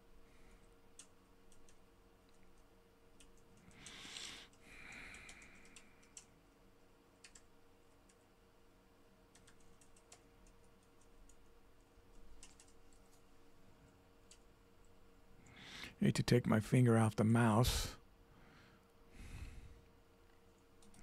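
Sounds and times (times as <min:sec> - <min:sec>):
low room hum: 0:00.0 - 0:21.0
computer mouse and keyboard clicks: 0:01.0 - 0:06.3, 0:07.2 - 0:08.3, 0:09.3 - 0:13.3.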